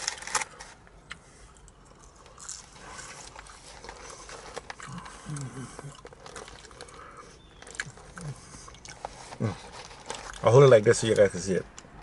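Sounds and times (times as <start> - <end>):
chewing fried fish: 1.5 - 10.6.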